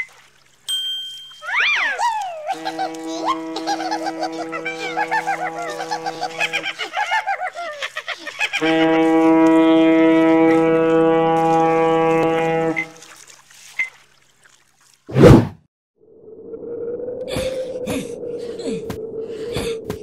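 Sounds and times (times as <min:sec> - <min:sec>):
excited cartoon voices: 0:01.5 - 0:02.7
ship's horn blast: 0:02.4 - 0:06.8, 0:08.6 - 0:13.1
whoosh sound effect: 0:15.1 - 0:15.6.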